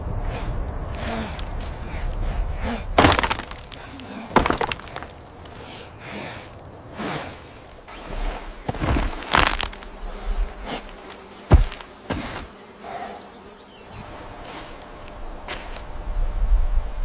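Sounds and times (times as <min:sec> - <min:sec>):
sharp knocks and cracks: 0:03.0 - 0:05.6, 0:08.6 - 0:09.9, 0:11.0 - 0:12.5
insect-like buzzing: 0:06.9 - 0:16.4.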